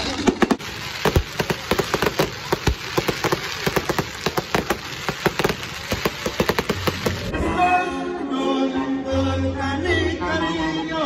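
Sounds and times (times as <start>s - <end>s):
fireworks crackling pops: 0.0s - 7.5s
deep firework booms: 0.1s - 7.4s.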